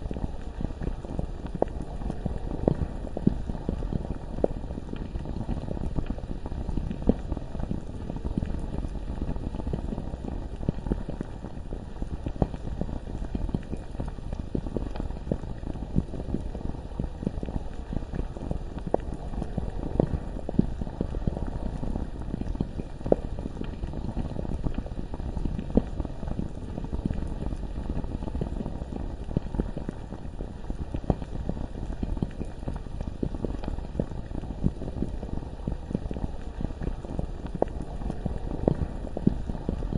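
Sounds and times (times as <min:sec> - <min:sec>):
thick lava bubbling: 0:00.0 - 0:39.9.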